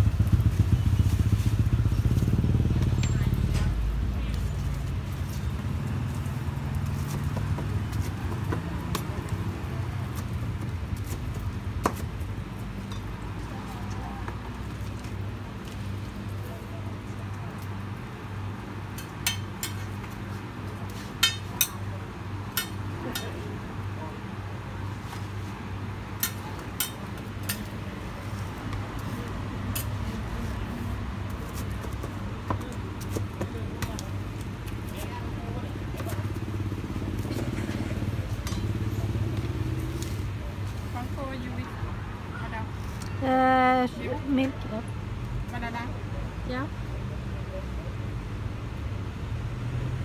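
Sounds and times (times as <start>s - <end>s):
low street hum: 0.0s - 50.0s
metal spatulas clinking on griddle: 19.0s - 20.0s, 21.2s - 21.8s, 22.5s - 23.4s, 26.2s - 27.7s, 38.4s - 38.8s.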